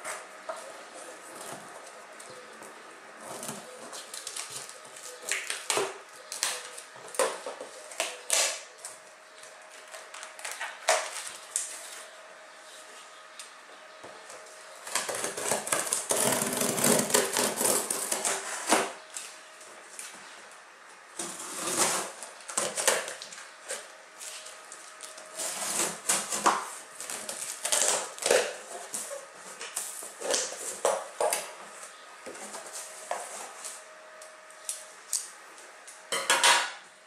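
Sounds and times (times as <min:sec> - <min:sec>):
packing tape peeling: 0:14.9 - 0:18.8, 0:25.0 - 0:30.8.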